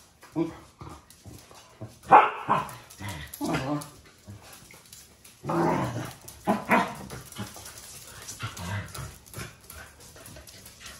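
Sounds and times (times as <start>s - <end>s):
dogs barking and whining: 1.9s - 9.7s.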